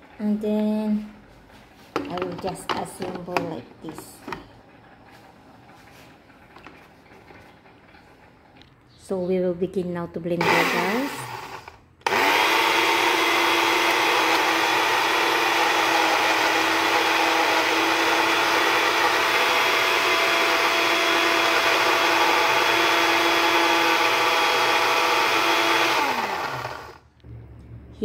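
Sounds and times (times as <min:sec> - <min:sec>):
blender motor running: 0:10.4 - 0:27.0.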